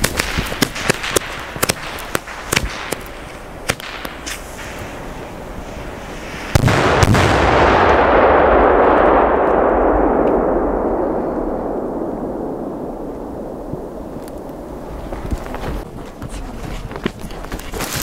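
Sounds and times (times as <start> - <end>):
firecracker bangs: 6.4 - 13.0
long echo: 6.7 - 14.9.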